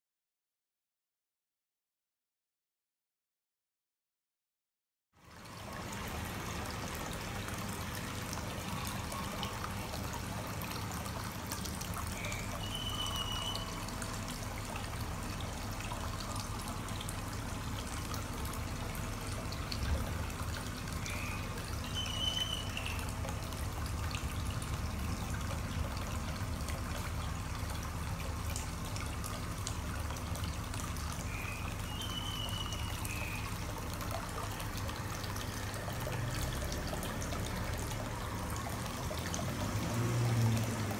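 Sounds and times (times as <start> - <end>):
water trickling into a pond: 5.2 - 40.9
short high-pitched call: 12.3 - 13.8, 21.9 - 23.0.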